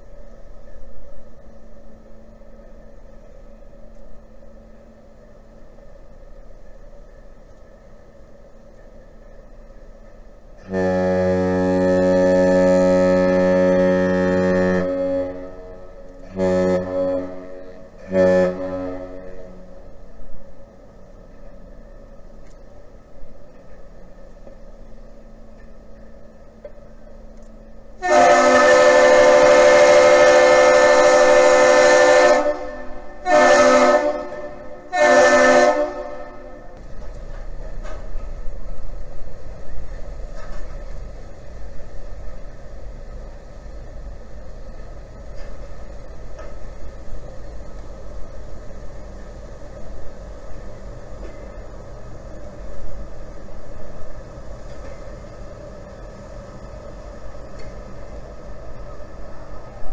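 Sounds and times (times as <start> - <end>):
ship diesel engines droning: 0.0 - 59.9
ship whistle blasts: 10.6 - 20.0, 28.0 - 36.8.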